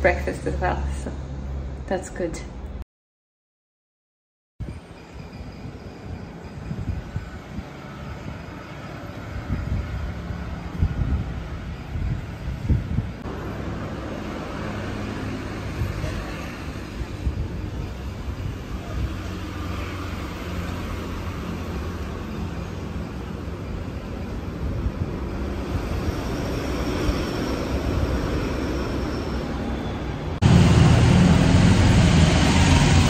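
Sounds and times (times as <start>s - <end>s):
loud steady low hum: 30.4s - 33.0s.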